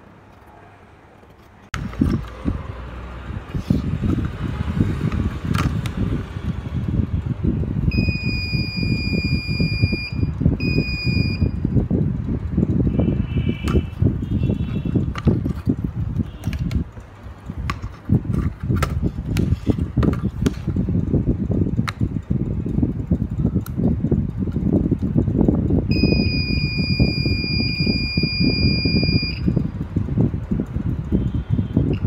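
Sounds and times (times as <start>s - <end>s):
multimeter beeping: 7.9s - 11.6s, 25.9s - 29.6s.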